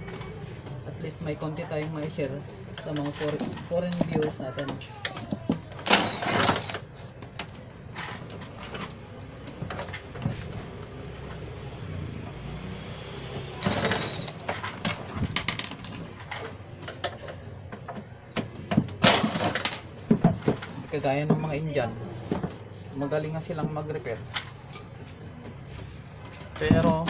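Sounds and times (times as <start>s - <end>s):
cordless driver spinning: 5.8s - 6.9s, 13.5s - 14.7s.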